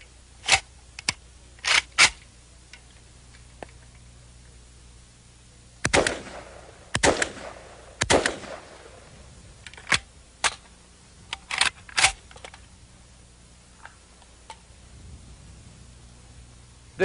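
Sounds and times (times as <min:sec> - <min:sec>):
rifle shots: 0:01.6 - 0:02.2, 0:05.8 - 0:09.1
metallic clacks of rifle handling: 0:09.6 - 0:10.7, 0:11.3 - 0:12.7.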